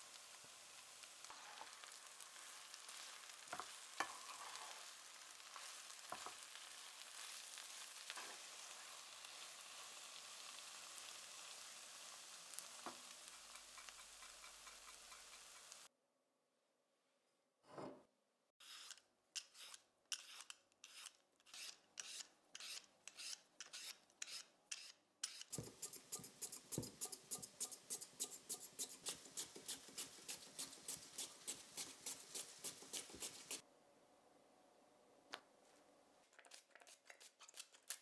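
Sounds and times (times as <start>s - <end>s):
mandoline slicer cutting potato: 18.6s - 33.6s
peeler scraping potato: 18.6s - 33.6s, 36.4s - 38.0s.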